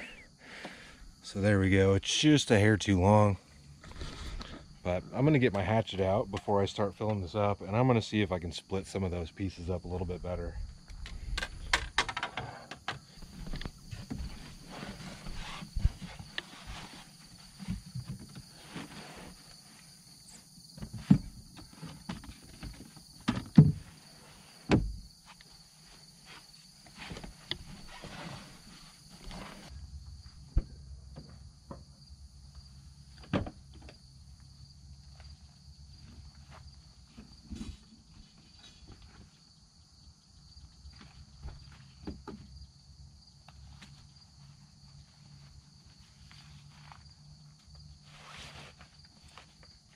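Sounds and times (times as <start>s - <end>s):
insect chorus: 0.0s - 49.9s
footsteps: 13.2s - 19.8s.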